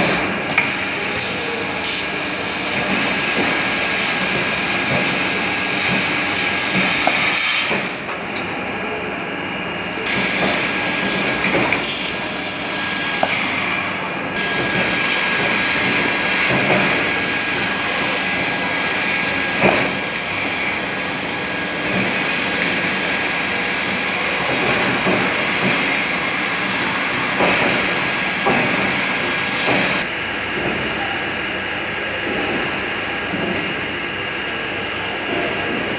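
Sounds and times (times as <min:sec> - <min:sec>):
laser cutter hissing: 0:00.0 - 0:08.6, 0:10.0 - 0:30.1.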